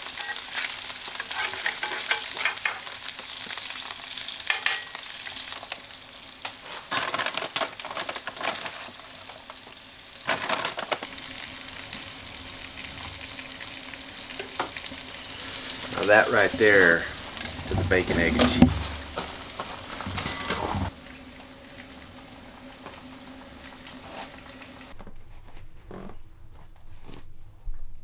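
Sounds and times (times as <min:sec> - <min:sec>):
bacon and eggs sizzling: 0:00.0 - 0:25.0
metal spatula scraping pan: 0:00.1 - 0:02.8, 0:20.0 - 0:20.9.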